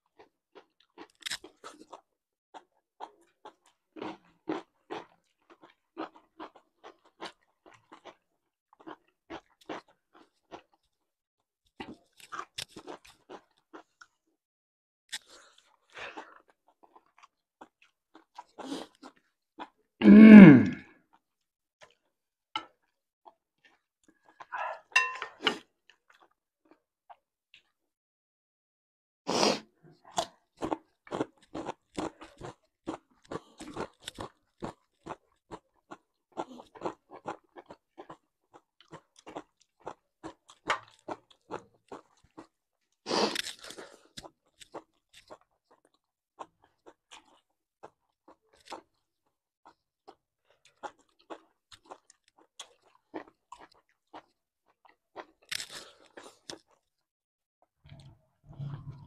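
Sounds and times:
wet chewing: 0:43.3 - 0:56.9.

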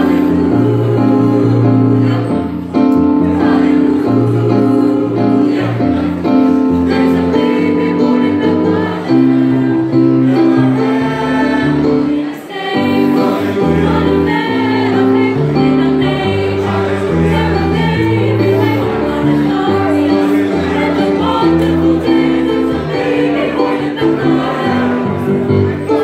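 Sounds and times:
mixed choir singing in harmony: 0:00.0 - 0:26.0.

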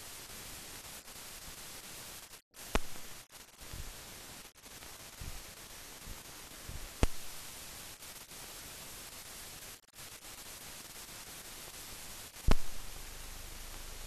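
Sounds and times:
soundtrack hiss: 0:00.0 - 0:14.0
sharp pops: 0:02.6 - 0:08.1, 0:12.4 - 0:14.0.

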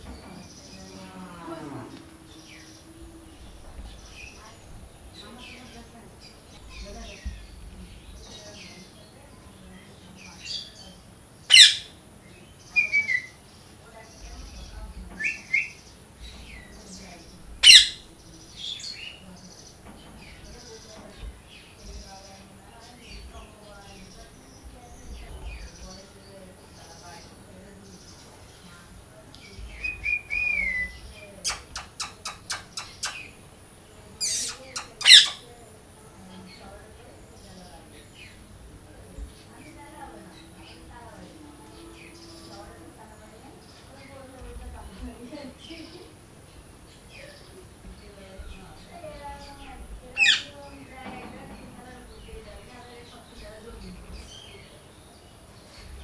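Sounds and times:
faint chirps: 0:00.0 - 0:50.8
parakeet screeching: 0:11.5 - 0:11.9, 0:17.6 - 0:18.0, 0:34.2 - 0:35.4, 0:50.2 - 0:50.5
parakeet sharp chirps: 0:11.5 - 0:11.9, 0:17.6 - 0:18.0, 0:29.8 - 0:33.4, 0:34.2 - 0:35.4, 0:50.2 - 0:50.5.

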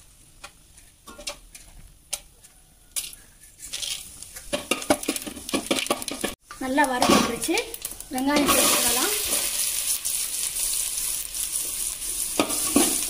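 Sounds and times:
spices sizzling in hot oil: 0:00.0 - 0:13.0.

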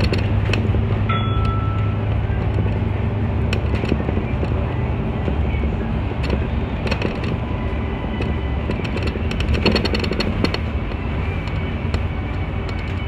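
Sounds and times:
clicking rattles: 0:00.0 - 0:00.8, 0:05.2 - 0:07.4, 0:08.1 - 0:13.0
bus engine and road rumble: 0:00.0 - 0:13.0.

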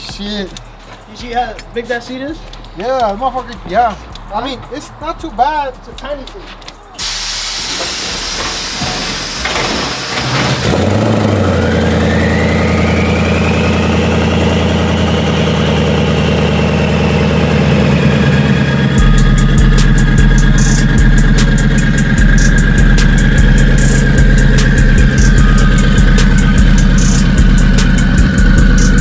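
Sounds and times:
car engine starting and idling: 0:07.0 - 0:29.0
turbo whine: 0:07.0 - 0:29.0
sharp engine ticks: 0:18.5 - 0:29.0.

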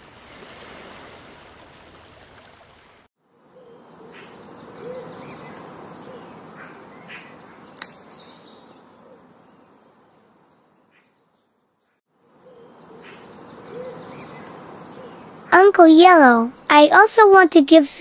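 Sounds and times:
birds chirping: 0:03.3 - 0:11.6, 0:12.2 - 0:16.7
sharp click: 0:07.8 - 0:08.0.

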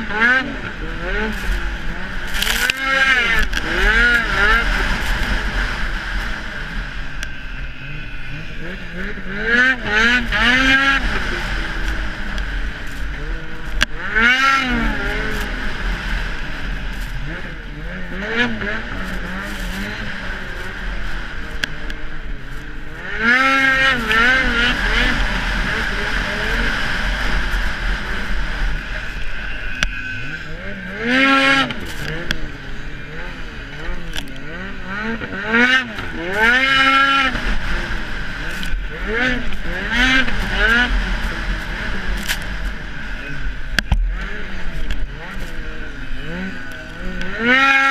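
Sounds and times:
snowmobile engine revving: 0:00.0 - 0:47.9
wind rushing over camera: 0:10.1 - 0:30.9.

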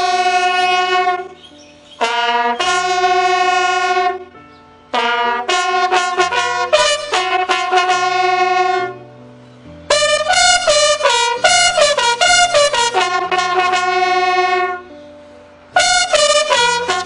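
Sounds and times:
slow trumpet melody: 0:00.0 - 0:01.4, 0:02.0 - 0:09.1, 0:09.9 - 0:15.0, 0:15.7 - 0:17.0
low sustained accompaniment: 0:05.6 - 0:17.0.

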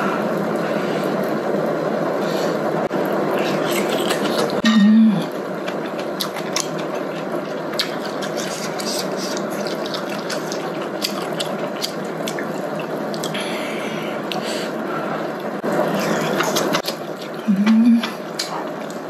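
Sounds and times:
person humming: 0:04.6 - 0:05.3, 0:17.4 - 0:18.2.

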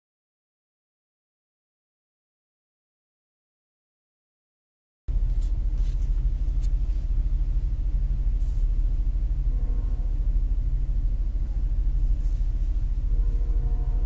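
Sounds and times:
car idling from inside cabin: 0:05.1 - 0:14.0.

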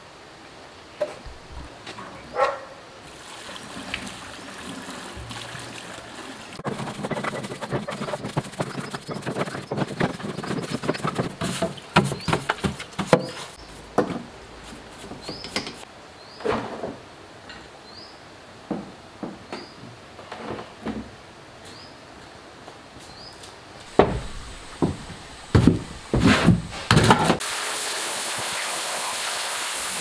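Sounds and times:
liquid pouring into plastic tub: 0:03.1 - 0:07.0
brush scrubbing engine parts: 0:06.6 - 0:13.9.

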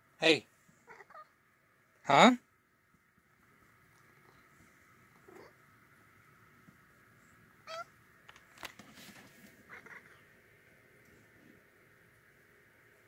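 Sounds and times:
cat meowing: 0:00.8 - 0:01.3, 0:07.6 - 0:08.0, 0:09.7 - 0:10.2
light clicks and rustles: 0:08.2 - 0:09.7.

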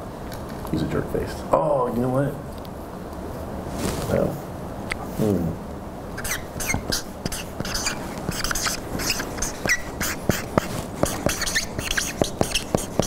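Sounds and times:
marker squeaking on whiteboard: 0:06.2 - 0:13.0
marker tip ticking on board: 0:06.2 - 0:13.0.

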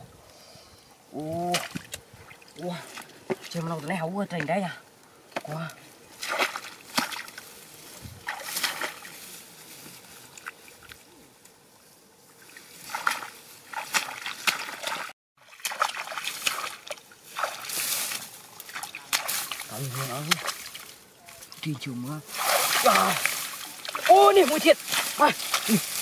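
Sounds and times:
splashing in muddy water: 0:01.2 - 0:04.5, 0:05.4 - 0:07.5, 0:08.2 - 0:09.3, 0:12.4 - 0:21.7, 0:22.3 - 0:26.0.

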